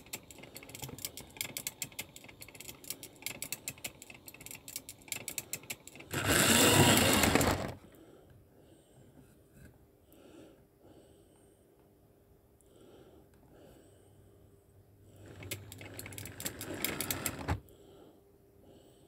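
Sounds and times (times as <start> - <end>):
model train wheels clicking: 0.0 - 7.7, 15.2 - 17.6.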